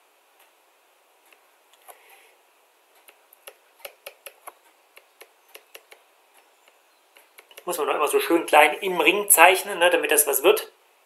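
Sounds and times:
stylus tapping on drawing tablet: 0:03.0 - 0:06.0.

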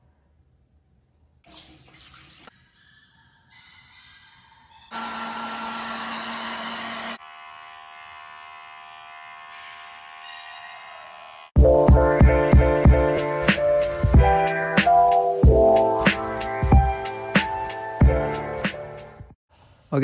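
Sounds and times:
water splashing: 0:01.4 - 0:02.5
blow dryer running: 0:04.9 - 0:11.6.

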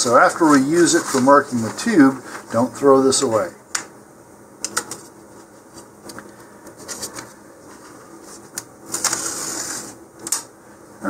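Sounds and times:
paper rustle: 0:00.2 - 0:02.7, 0:06.8 - 0:10.0.

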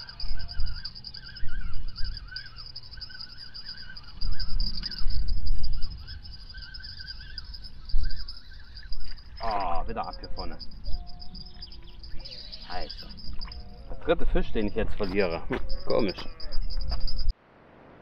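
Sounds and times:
songbirds warbling: 0:00.0 - 0:17.3
steady high trill: 0:00.0 - 0:17.3
wind rumble on microphone: 0:03.8 - 0:17.3.

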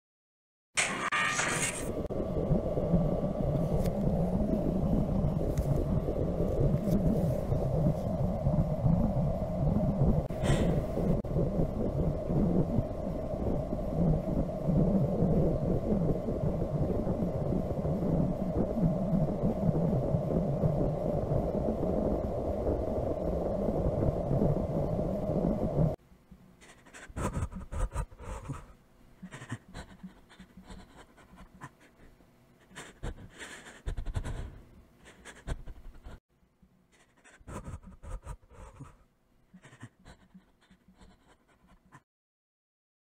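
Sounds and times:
breathy scratchy sounds: 0:00.8 - 0:02.1
steady low hum: 0:00.8 - 0:42.0.

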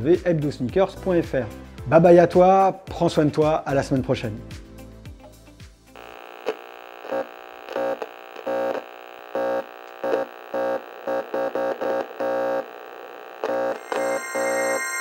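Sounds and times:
stuttering buzzy synthesizer tone: 0:06.0 - 0:15.0.

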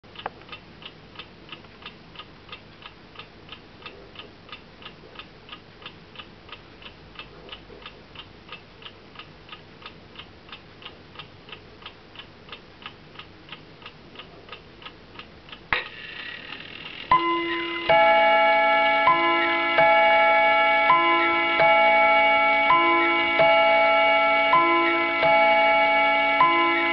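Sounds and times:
clock ticking quickly: 0:00.1 - 0:18.4
two-note chime on gong rods: 0:17.1 - 0:26.9.

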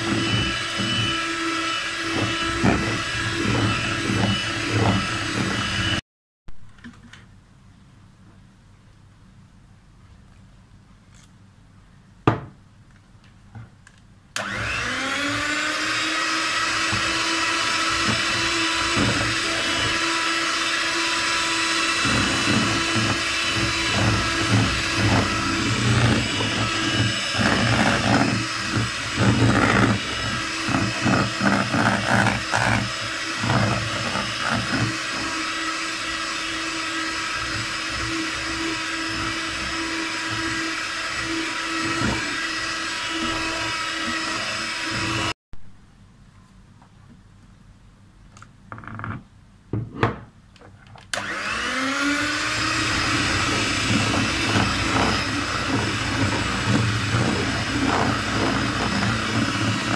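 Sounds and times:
electric hand mixer whining: 0:00.0 - 0:06.0, 0:14.4 - 0:45.4, 0:51.1 - 0:59.9.

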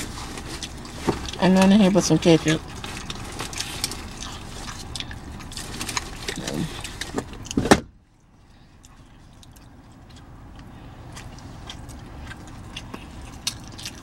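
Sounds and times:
takeout packaging rustling: 0:00.0 - 0:07.6.

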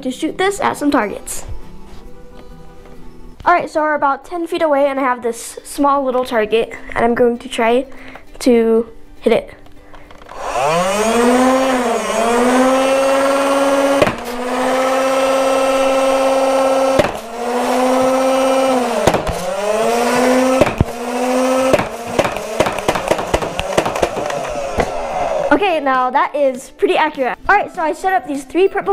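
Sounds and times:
flywheels whining: 0:09.9 - 0:25.6
clicks of rounds firing: 0:21.7 - 0:24.6.

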